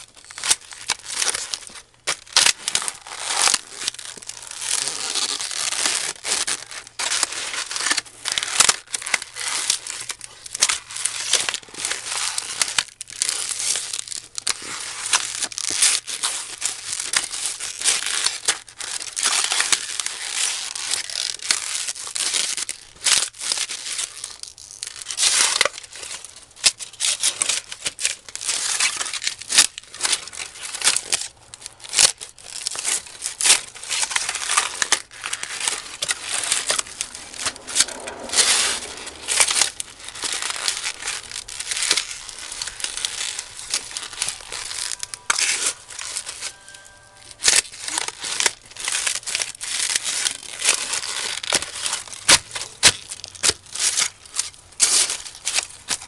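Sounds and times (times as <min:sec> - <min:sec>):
styrofoam crunching underfoot: 0:00.2 - 0:37.4, 0:39.5 - 0:46.6.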